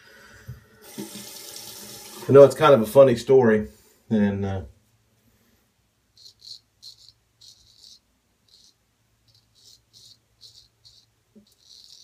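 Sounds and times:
razor scraping stubble: 6.2s - 12.0s.

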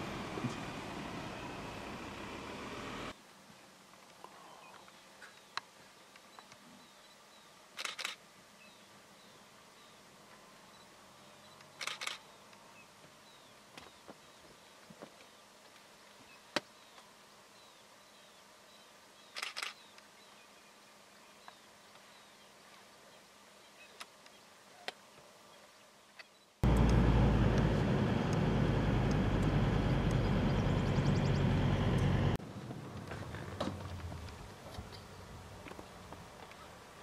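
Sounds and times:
vehicle engine rumble: 0.0s - 3.2s, 26.6s - 36.6s
sharp clicks: 11.6s - 12.2s, 19.4s - 20.1s.

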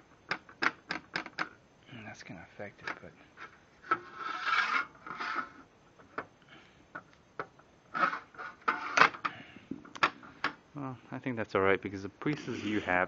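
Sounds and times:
level scraping on metal table: 3.9s - 5.6s, 8.0s - 9.1s.

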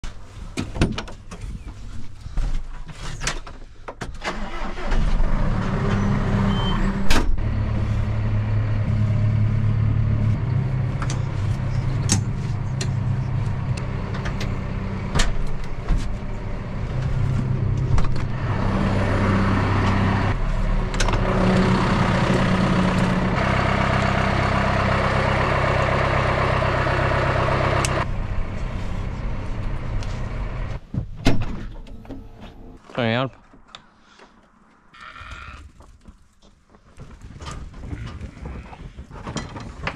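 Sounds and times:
tractor diesel engine running: 4.3s - 30.9s.

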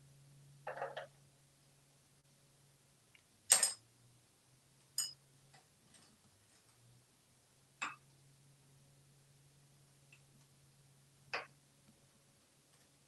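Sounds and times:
faint low hum: 0.0s - 13.0s
metal utensil clattering on countertop: 3.5s - 3.8s, 5.0s - 5.2s.

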